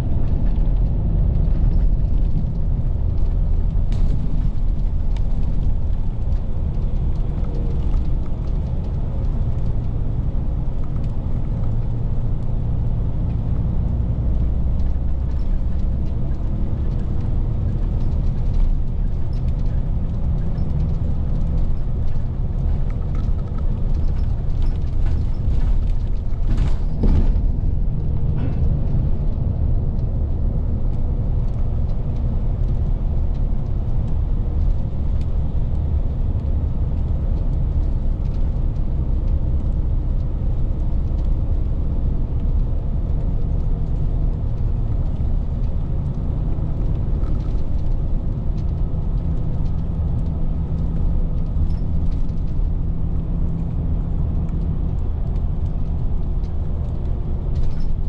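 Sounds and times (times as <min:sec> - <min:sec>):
bus engine and road rumble: 0:00.0 - 0:58.0
clatter of knocks: 0:14.5 - 0:29.5.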